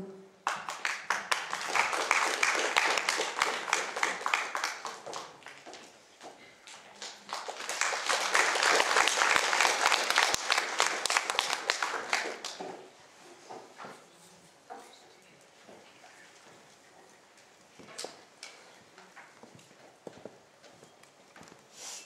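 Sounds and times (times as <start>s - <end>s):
audience applauding: 0.4s - 5.9s, 6.6s - 12.8s.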